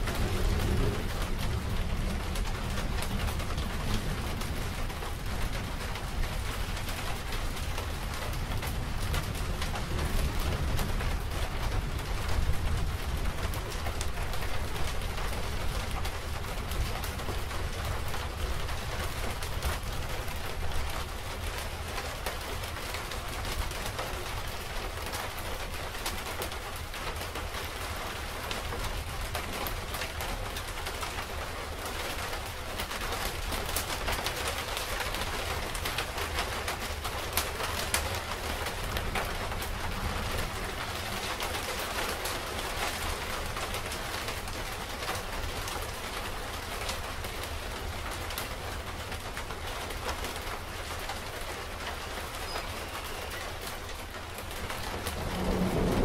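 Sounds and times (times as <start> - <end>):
low rumble: 0.0 - 5.9, 54.9 - 56.0
rain falling: 0.0 - 56.0.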